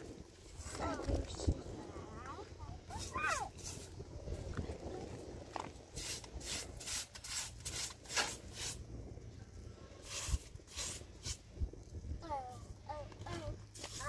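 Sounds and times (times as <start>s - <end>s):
hand broom sweeping rug: 2.9s - 4.0s, 6.0s - 8.8s, 10.0s - 11.5s, 13.3s - 14.0s.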